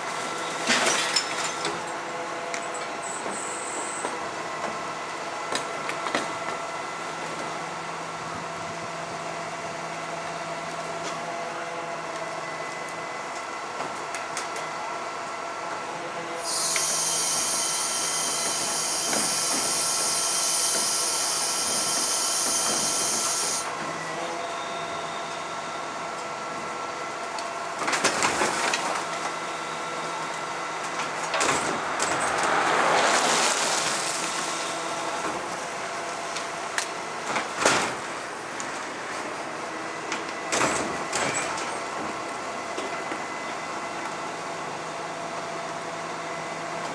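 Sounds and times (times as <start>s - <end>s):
garbage truck engine drone: 0.0s - 46.9s
loud hiss: 16.4s - 23.7s.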